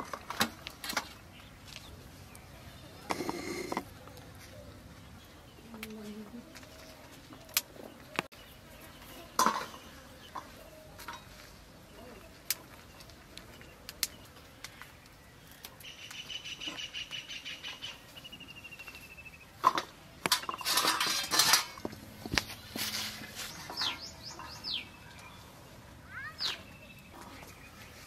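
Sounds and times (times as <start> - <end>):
birds calling: 0.8 - 28.0
rustling and clatter on steel plate: 9.3 - 11.5, 19.6 - 24.6
drumstick pods snapping: 13.9 - 14.8.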